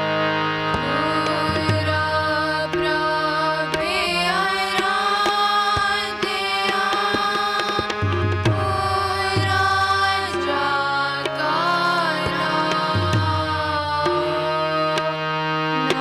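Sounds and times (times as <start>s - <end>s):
harmoniums: 0.0s - 16.0s
tabla strokes: 0.7s - 11.5s
young voices singing: 0.8s - 16.0s.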